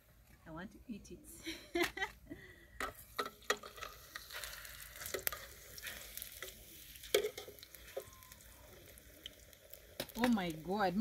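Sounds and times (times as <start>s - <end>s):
food deep-frying in hot oil: 2.9s - 11.0s.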